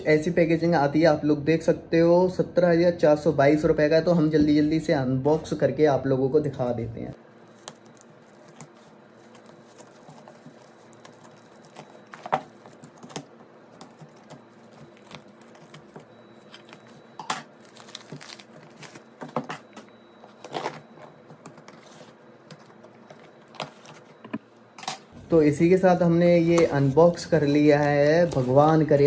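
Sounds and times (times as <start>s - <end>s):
packaging clicks and rustles: 7.4s - 24.5s, 26.3s - 29.0s.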